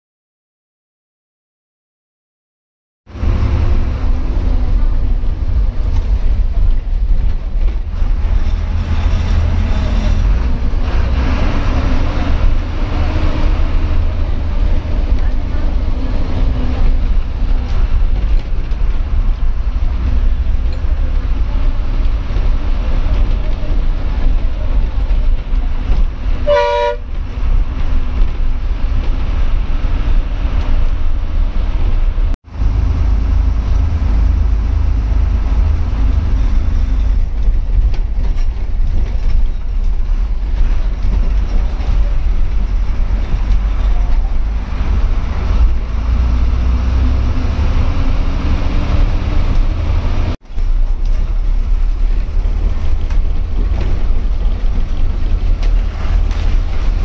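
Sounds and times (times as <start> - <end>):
bus diesel engine rumble: 3.1 - 57.0
bus horn toot: 26.4 - 27.2.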